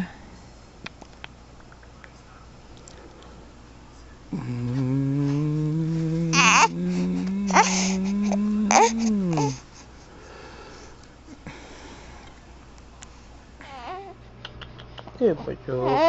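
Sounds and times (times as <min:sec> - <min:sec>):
man humming a long vowel: 0:04.3 - 0:09.6
sharp mouth noises: 0:04.3 - 0:09.6.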